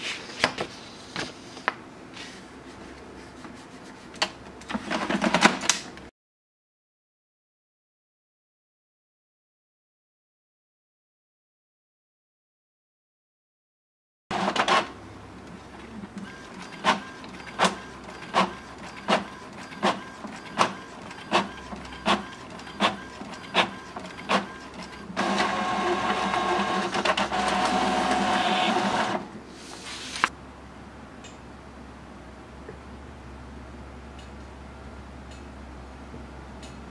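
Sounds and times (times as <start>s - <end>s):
printer whirring: 14.3s - 15.6s, 16.2s - 29.4s.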